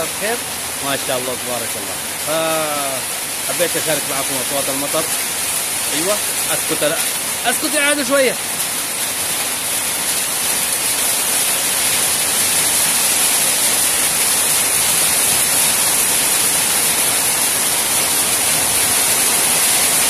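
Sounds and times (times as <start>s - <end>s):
rain pouring: 0.0s - 20.0s.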